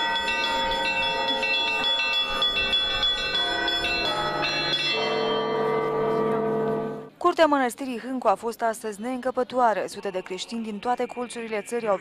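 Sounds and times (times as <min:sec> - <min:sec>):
church bells ringing: 0:00.0 - 0:07.2
deep steady bell tone: 0:00.0 - 0:07.2.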